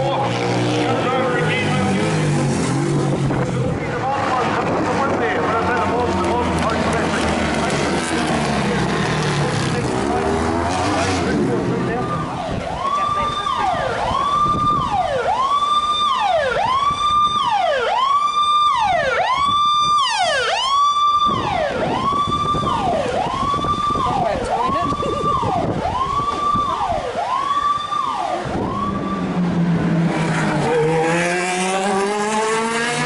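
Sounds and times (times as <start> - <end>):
electronic siren wailing: 11.9 - 29.7.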